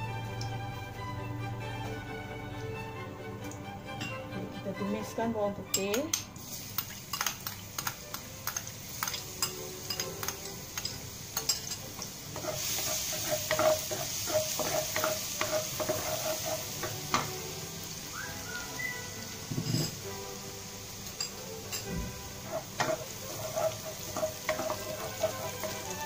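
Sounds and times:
garlic sizzling in hot oil: 0:06.4 - 0:26.0
spatula scraping and tapping pan: 0:06.8 - 0:17.4, 0:19.4 - 0:20.1, 0:21.2 - 0:26.0.

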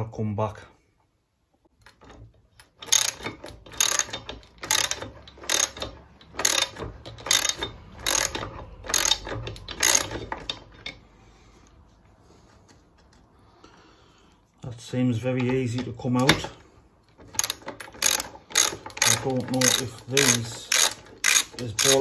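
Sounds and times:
ratchet wrench clicking: 0:02.6 - 0:11.0, 0:17.3 - 0:22.0.

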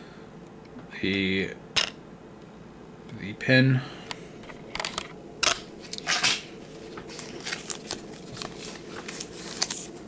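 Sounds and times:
plastic packaging rustling: 0:06.0 - 0:10.0
foil packs crinkling: 0:07.1 - 0:10.0.

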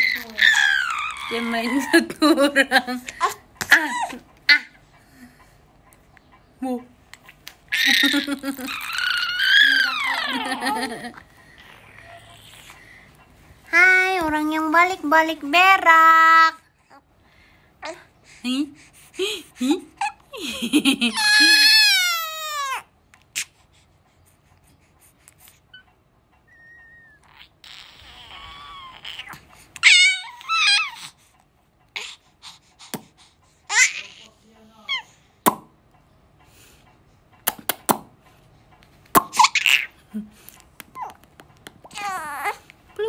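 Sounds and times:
baby squealing: 0:00.0 - 0:01.9, 0:07.7 - 0:10.5, 0:21.1 - 0:22.8, 0:26.5 - 0:31.1, 0:33.7 - 0:34.3
lip-smacking kiss sounds: 0:35.4 - 0:35.7, 0:37.4 - 0:38.2, 0:39.0 - 0:39.8, 0:40.4 - 0:42.0.

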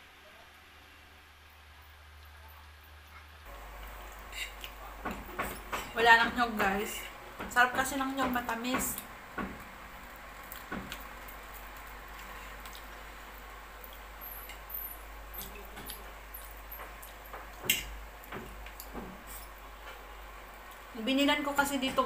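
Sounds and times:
person chewing wet mouth noises: 0:12.0 - 0:13.1.

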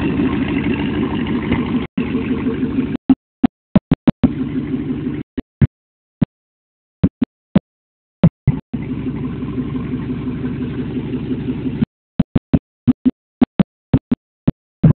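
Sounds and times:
pickup truck engine idling: 0:00.0 - 0:03.0, 0:08.8 - 0:11.8.

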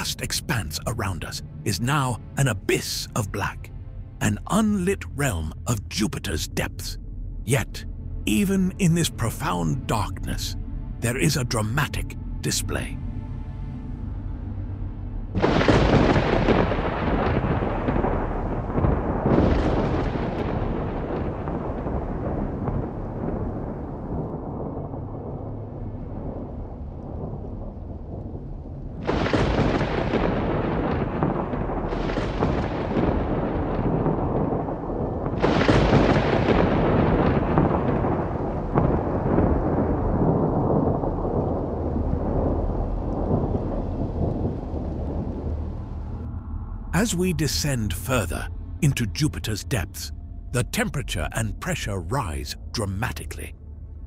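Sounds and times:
thunder rumbling: 0:15.4 - 0:54.0.

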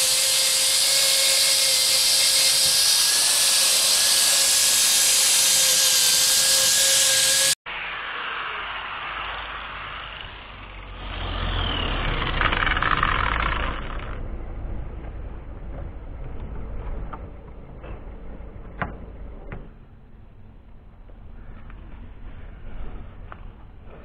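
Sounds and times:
road vehicle rumbling past: 0:07.9 - 0:19.5.

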